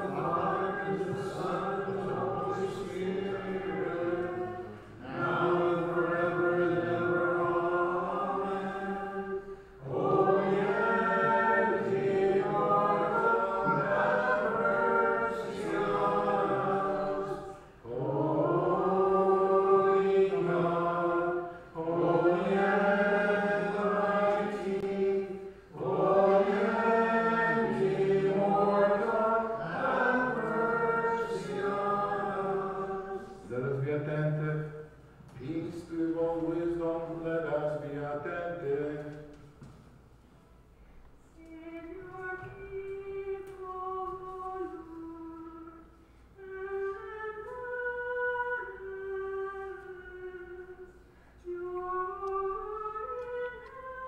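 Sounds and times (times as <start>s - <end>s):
unaccompanied voices chanting: 0.0s - 34.8s.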